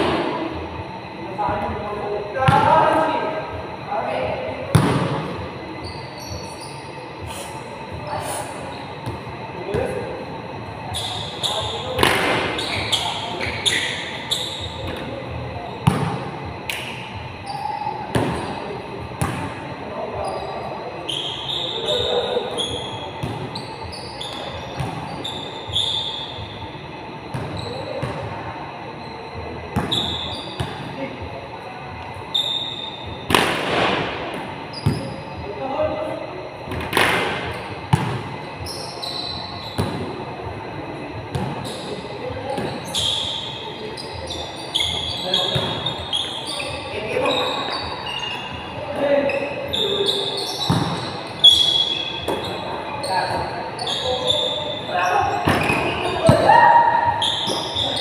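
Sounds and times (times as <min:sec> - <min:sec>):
sneaker squeaks: 0:00.0 - 0:31.2, 0:32.0 - 0:40.3, 0:41.0 - 0:58.0
basketball bouncing in gym: 0:04.6 - 0:06.5, 0:15.8 - 0:18.6, 0:19.2 - 0:19.6, 0:21.8 - 0:26.0, 0:27.3 - 0:28.3, 0:29.8 - 0:30.9, 0:33.3 - 0:35.2, 0:36.7 - 0:40.2, 0:41.2 - 0:43.5, 0:44.2 - 0:47.8, 0:49.7 - 0:52.6, 0:53.3 - 0:58.0
basketball bouncing on gym court: 0:04.7 - 0:05.2, 0:15.8 - 0:16.8, 0:19.2 - 0:19.5, 0:24.3 - 0:25.1, 0:37.9 - 0:38.3, 0:50.6 - 0:51.1.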